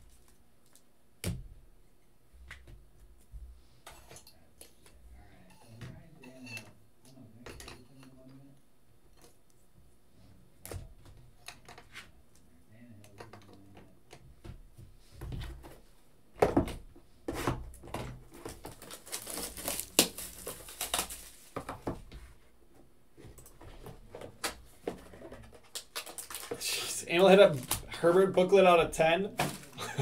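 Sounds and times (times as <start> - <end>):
crinkling and rustling: 16.5 - 30.0.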